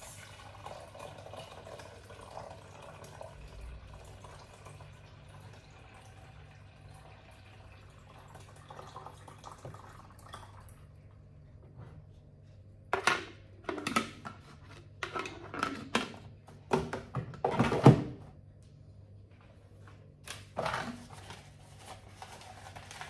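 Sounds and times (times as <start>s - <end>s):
water pouring: 0.0s - 11.0s
plastic carafe clunking and rattling: 12.9s - 18.2s.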